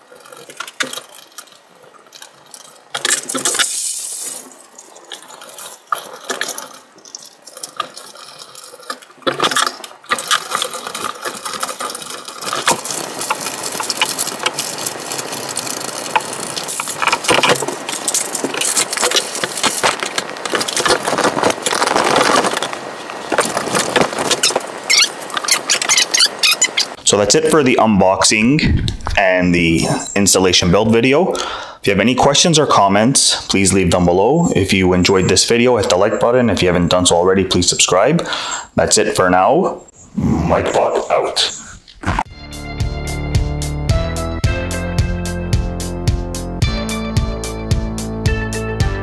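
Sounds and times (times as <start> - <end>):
metal tubes clicking: 0.0 - 22.7
fabric and plastic crinkling: 0.0 - 27.0.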